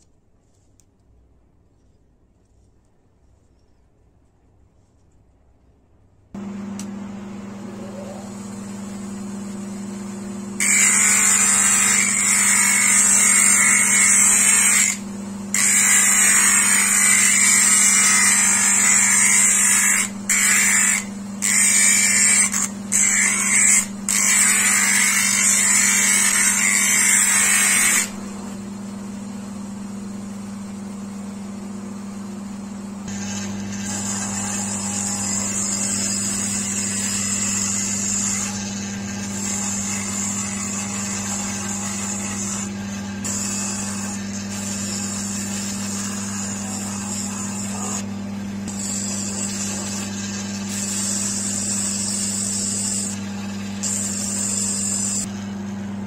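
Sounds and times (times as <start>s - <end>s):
motor hum: 6.4s - 56.0s
horn grinding on abrasive wheel: 10.6s - 28.2s, 33.1s - 55.3s.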